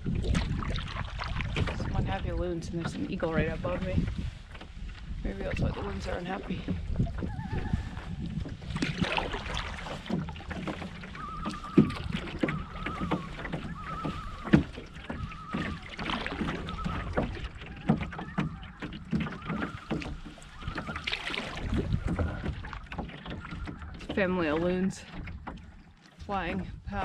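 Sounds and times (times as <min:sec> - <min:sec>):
canoe paddle strokes splashing: 0:00.0 - 0:27.0
wind rumbling on microphone: 0:00.0 - 0:27.0
loons tremolo calls: 0:11.0 - 0:22.3.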